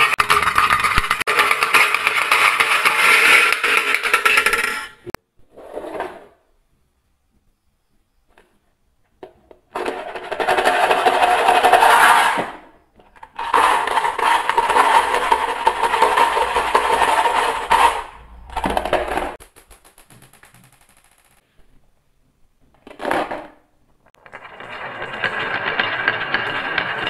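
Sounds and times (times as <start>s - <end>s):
marbles clattering on wood: 0.0s - 4.9s, 13.1s - 21.4s.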